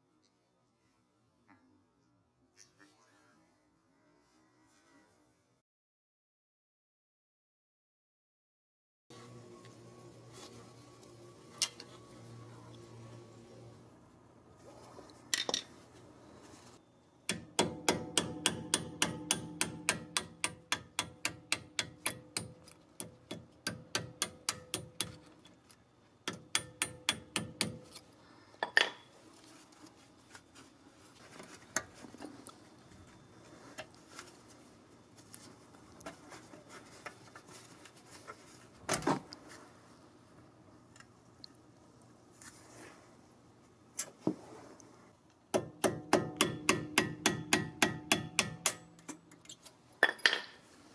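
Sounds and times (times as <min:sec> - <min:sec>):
hammer tapping metal: 0:17.3 - 0:25.2, 0:26.3 - 0:27.9, 0:45.6 - 0:49.2.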